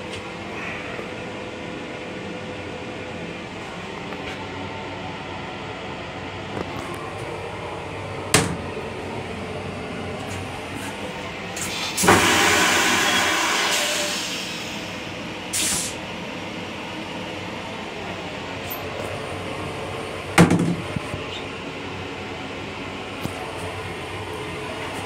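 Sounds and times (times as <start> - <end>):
train running noise: 3.4 - 25.0
toilet flushing: 11.5 - 16.0.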